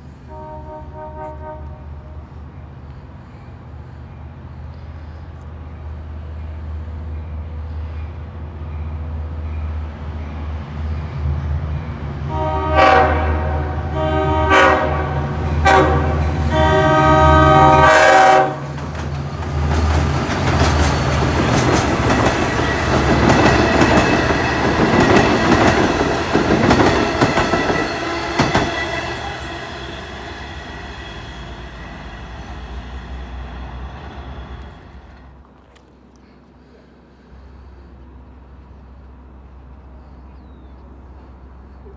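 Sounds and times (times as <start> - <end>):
locomotive air horn blasts: 0.2 - 2.2, 12.3 - 18.7, 24.0 - 32.2
train wheels clacking over rail joints: 18.7 - 29.2.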